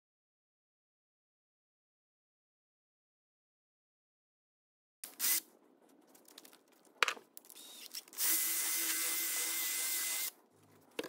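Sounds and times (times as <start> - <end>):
small electric power tool running: 7.7 - 10.3.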